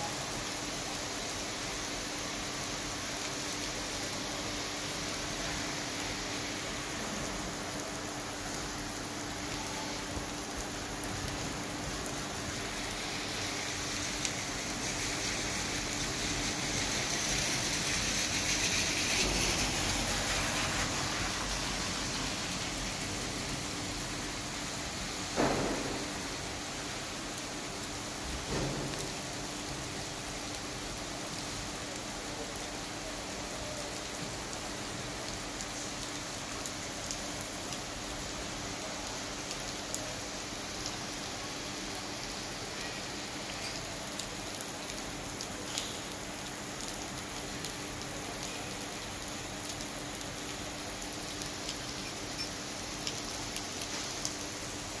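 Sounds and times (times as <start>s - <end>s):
rain on paved road: 0.0s - 55.0s
raindrop ticks: 43.6s - 54.4s.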